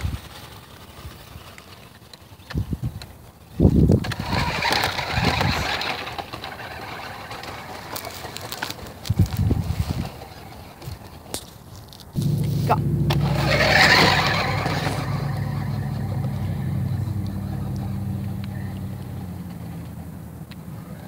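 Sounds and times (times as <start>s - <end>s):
vehicle motor humming: 12.2s - 21.0s.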